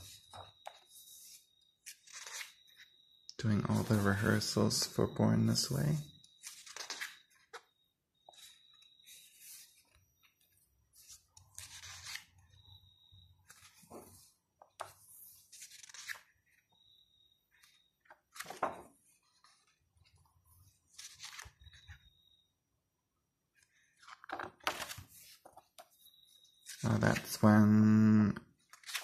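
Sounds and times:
book pages turning: 0:00.0 - 0:04.9, 0:06.2 - 0:12.6, 0:13.3 - 0:16.7, 0:17.6 - 0:22.1, 0:23.6 - 0:25.9, 0:26.5 - 0:27.6, 0:28.6 - 0:29.0.

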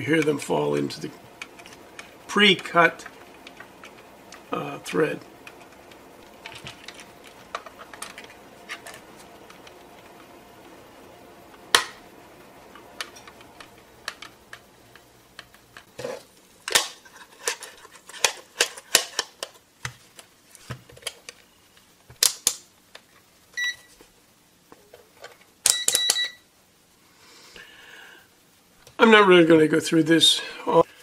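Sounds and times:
plastic handling clicks: 0:12.8 - 0:15.9.

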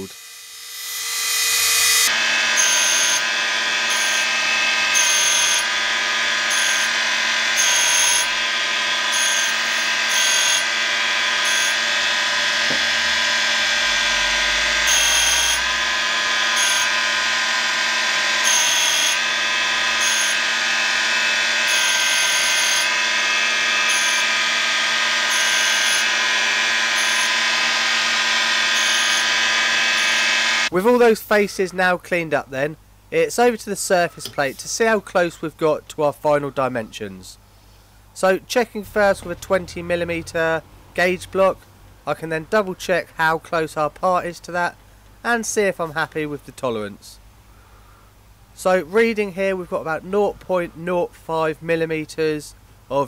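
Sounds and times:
high grinding hiss: 0:00.0 - 0:30.7
motor whine: 0:00.0 - 0:30.7, 0:38.8 - 0:40.6.

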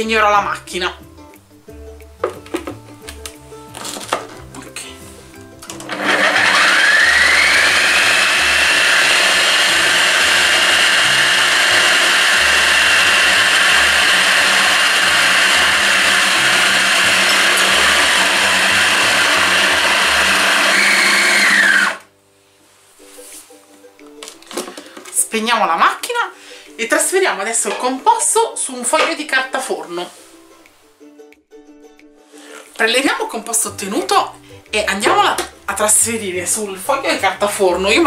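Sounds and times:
food processor motor whine: 0:05.8 - 0:22.1.

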